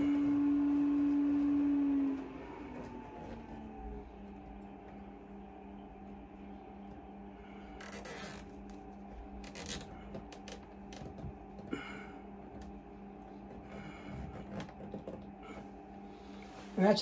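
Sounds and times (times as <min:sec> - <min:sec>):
steady low hum: 0:00.0 - 0:17.0
rustling of wires and cable ties: 0:07.8 - 0:11.8, 0:12.4 - 0:15.7.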